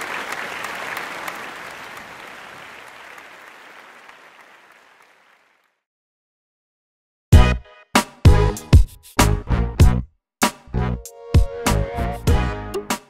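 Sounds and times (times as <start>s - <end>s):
crowd applause: 0.0s - 5.8s.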